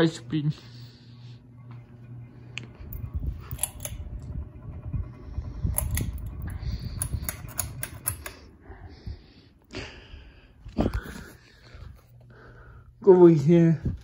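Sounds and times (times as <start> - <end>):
ceiling fan rumbling: 0.0 - 14.0
pull-chain switch clicks: 3.4 - 4.0, 5.7 - 8.5.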